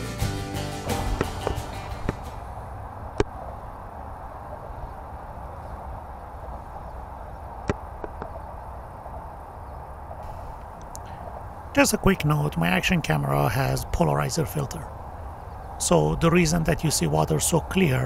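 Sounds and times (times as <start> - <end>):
sharp clicks: 10.6 - 11.1.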